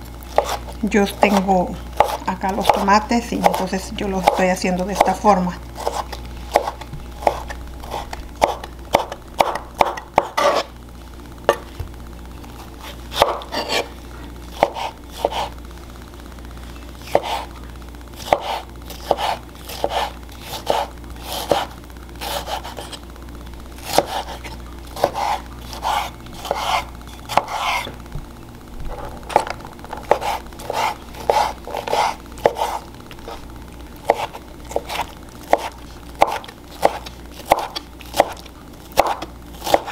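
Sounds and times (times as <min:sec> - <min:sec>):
knife chopping on wooden board: 0:00.4 - 0:00.6, 0:02.0 - 0:03.6, 0:05.8 - 0:10.7, 0:13.1 - 0:13.9, 0:14.6 - 0:15.5, 0:17.1 - 0:17.5, 0:18.2 - 0:23.0, 0:23.8 - 0:28.0, 0:30.1 - 0:33.4, 0:34.1 - 0:39.9.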